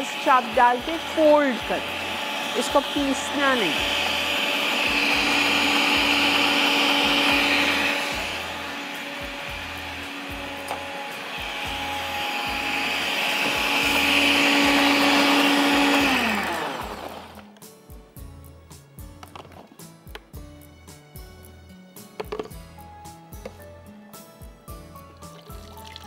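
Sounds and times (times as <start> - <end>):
electric blender grinding: 0.0 - 17.5, 25.5 - 26.0.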